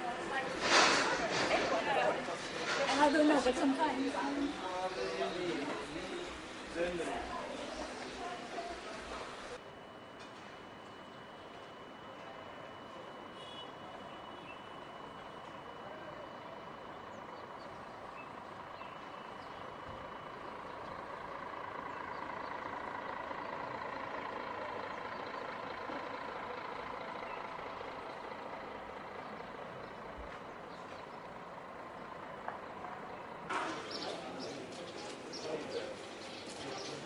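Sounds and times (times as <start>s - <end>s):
distant traffic hum: 0.0s - 37.0s
faint steady tone: 4.2s - 33.5s.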